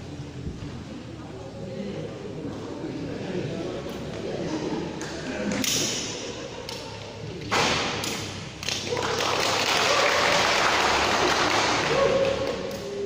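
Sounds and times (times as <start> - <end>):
crowd applauding: 8.6 - 12.8.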